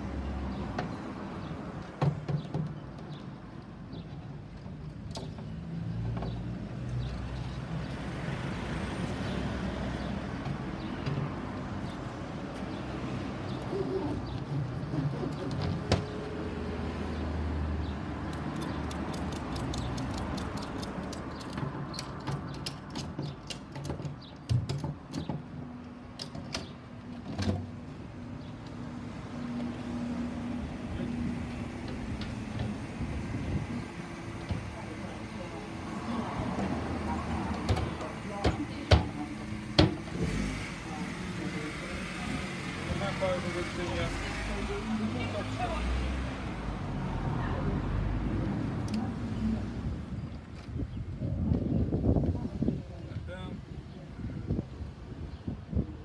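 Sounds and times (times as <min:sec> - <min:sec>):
ratchet strap clicking: 0:18.3 - 0:23.8
knocks on plywood panels: 0:39.8 - 0:40.1.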